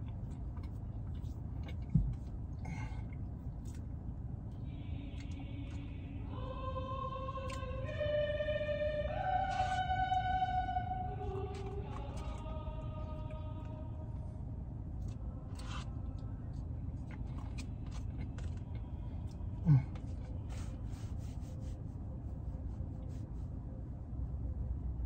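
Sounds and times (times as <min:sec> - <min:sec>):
car cabin rumble: 0:00.0 - 0:06.6
person's low vocal sound: 0:19.6 - 0:20.2.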